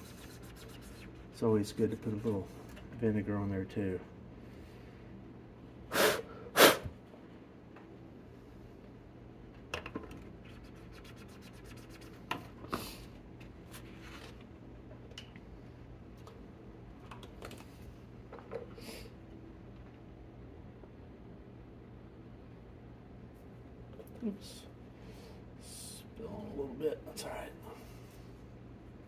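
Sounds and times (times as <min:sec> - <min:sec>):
light scratching on circuit board: 0:00.0 - 0:01.2
loud hissing bursts: 0:05.9 - 0:06.9.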